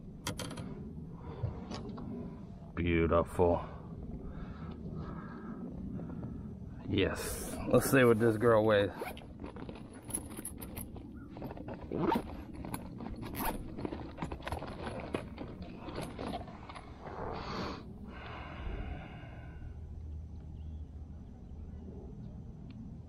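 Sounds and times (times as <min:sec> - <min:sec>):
fishing gear clicking and scraping: 0:00.2 - 0:00.8, 0:08.5 - 0:17.5.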